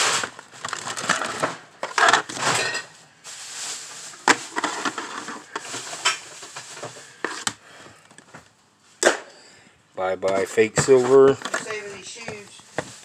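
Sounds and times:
hands rummaging through junk: 0.0s - 8.3s, 10.2s - 13.0s
hard objects clacking together: 10.2s - 13.0s.

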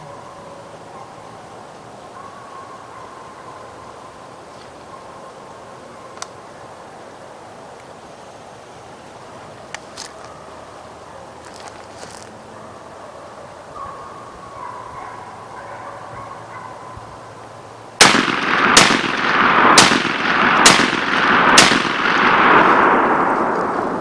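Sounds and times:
gunshots echoing: 18.0s - 24.0s.

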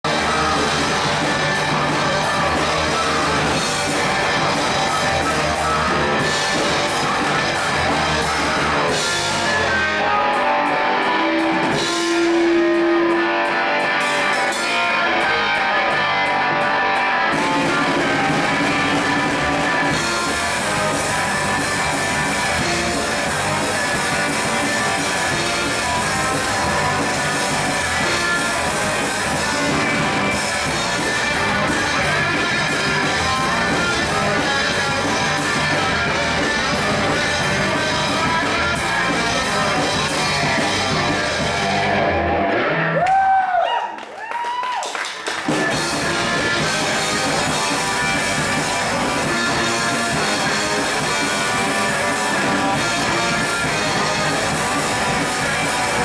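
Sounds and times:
live rock band playing: 0.0s - 43.5s, 44.8s - 56.0s.

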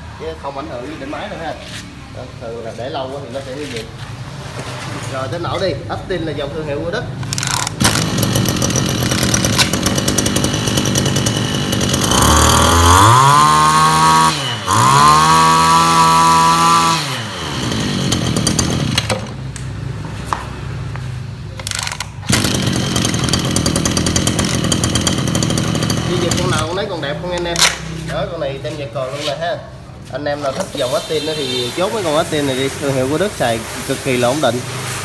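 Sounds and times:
brush cutter engine revving: 7.2s - 19.5s, 21.6s - 27.9s.

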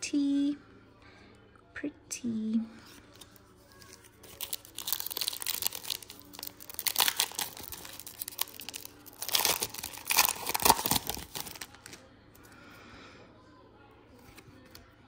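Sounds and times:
foil wrapper crinkling and tearing: 3.7s - 12.0s.

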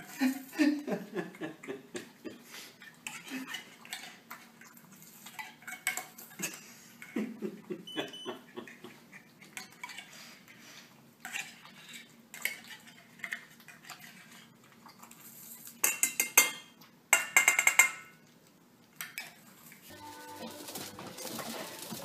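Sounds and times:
spoon clinking on metal bowls: 15.8s - 18.2s
spoon scraping tin can: 19.9s - 22.0s.

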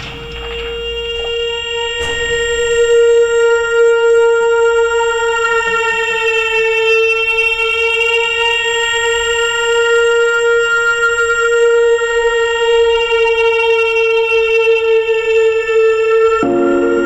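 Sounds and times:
reedy wind instrument note: 0.0s - 13.2s.

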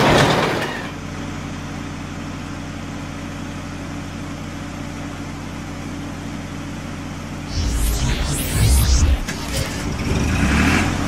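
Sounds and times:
loud rushing swoosh: 7.5s - 11.0s.

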